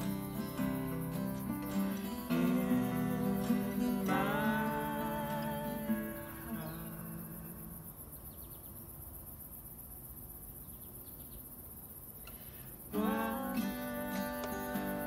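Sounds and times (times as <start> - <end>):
acoustic guitar chords: 0.0 - 8.3, 12.4 - 15.0
insect chirping trills: 0.0 - 15.0.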